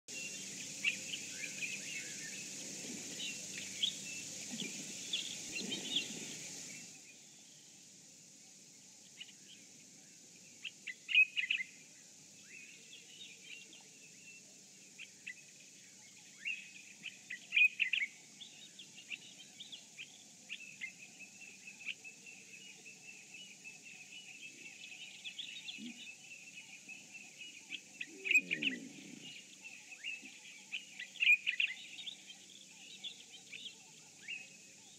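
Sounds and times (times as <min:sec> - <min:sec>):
steady hiss: 0:00.1 - 0:34.9
birds chirping and calling: 0:25.3 - 0:34.5.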